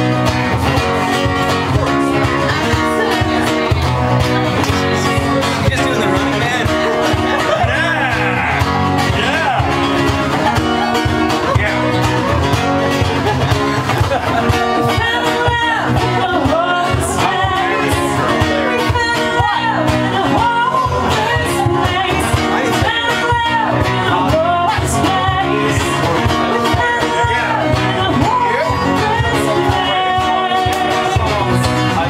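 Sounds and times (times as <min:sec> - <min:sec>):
acoustic guitar strumming: 0:00.0 - 0:32.0
woman singing: 0:00.7 - 0:05.7, 0:14.5 - 0:31.6.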